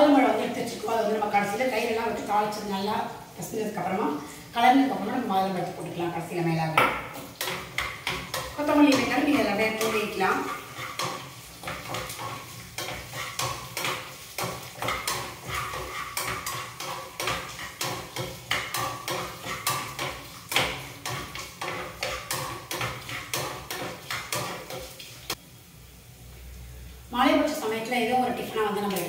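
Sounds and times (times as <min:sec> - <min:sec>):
oil frying: 0:00.0 - 0:29.0
metal spoon stirring in pan: 0:07.0 - 0:25.4.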